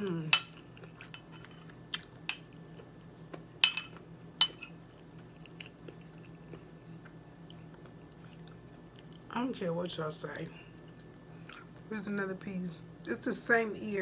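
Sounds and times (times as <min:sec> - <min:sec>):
faint steady hum: 0:00.0 - 0:14.0
metal spoon clinking on plate: 0:03.6 - 0:04.8.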